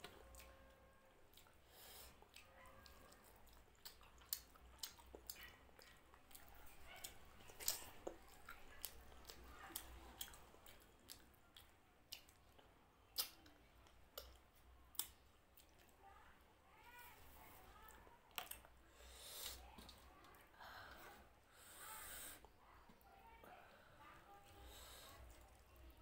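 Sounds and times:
wet chewing and mouth clicks: 0.0s - 16.0s, 18.0s - 20.4s.

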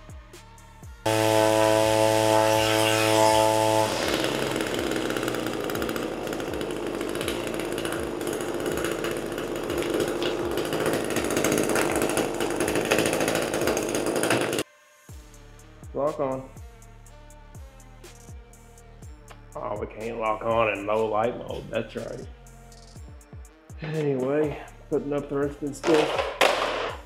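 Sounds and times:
string trimmer engine running: 1.0s - 14.6s.

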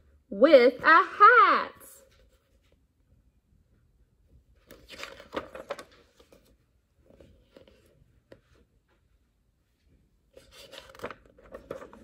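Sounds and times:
book page rustling: 4.6s - 8.6s, 10.3s - 12.0s.

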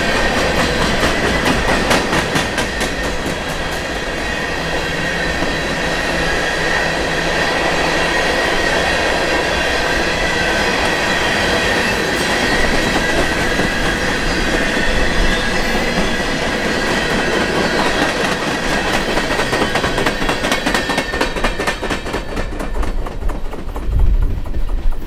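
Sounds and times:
train wheels rolling on rails: 0.0s - 25.0s
high wheel squeal: 2.7s - 21.6s
wheels clicking over rail joints: 16.9s - 25.0s.

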